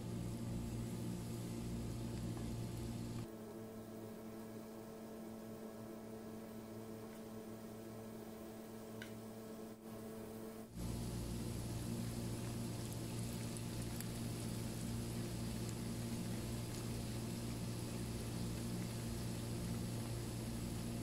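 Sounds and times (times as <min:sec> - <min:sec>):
food deep-frying in hot oil: 0:00.0 - 0:03.3, 0:10.7 - 0:21.0
steady low hum: 0:00.0 - 0:21.0.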